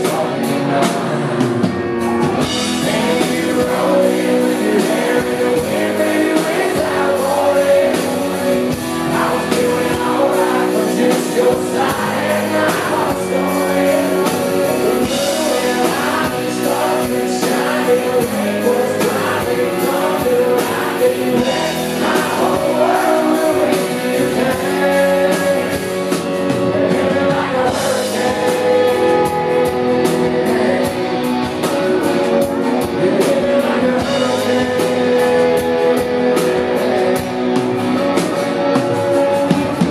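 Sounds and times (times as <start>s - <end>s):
live country band: 0.0s - 39.9s
male lead vocal: 0.0s - 39.9s.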